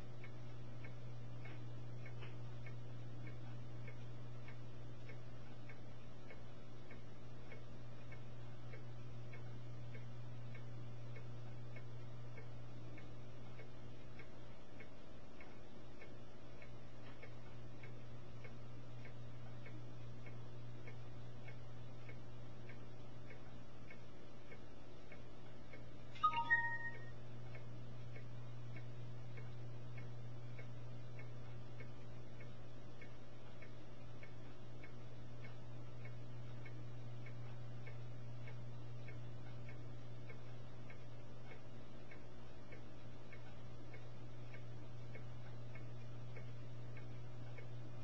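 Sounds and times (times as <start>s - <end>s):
faint regular ticking: 0.0s - 48.0s
steady low hum: 0.0s - 48.0s
short pitched beeps: 26.2s - 27.1s.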